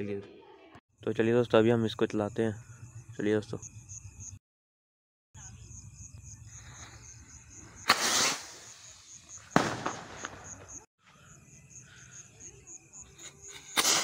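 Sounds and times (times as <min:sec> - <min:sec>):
firework bang: 0:07.8 - 0:08.8, 0:09.5 - 0:10.8, 0:13.7 - 0:14.0
firework rocket whoosh: 0:07.8 - 0:10.6.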